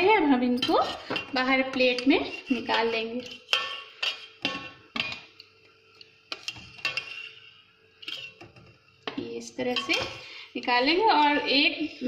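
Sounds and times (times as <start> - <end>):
metal spoon clinking against pot: 0.6 - 5.3, 6.3 - 7.4, 8.0 - 10.2.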